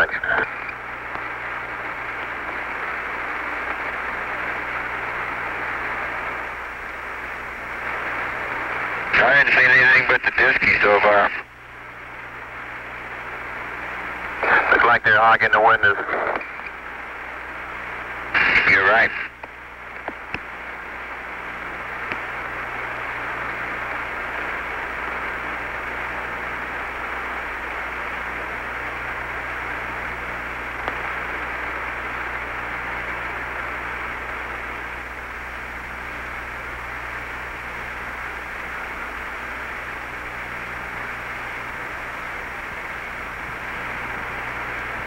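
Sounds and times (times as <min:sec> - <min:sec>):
radio channel hiss: 0:00.0 - 0:45.0
faint clicks: 0:19.4 - 0:20.5, 0:22.0 - 0:22.3, 0:30.8 - 0:31.1.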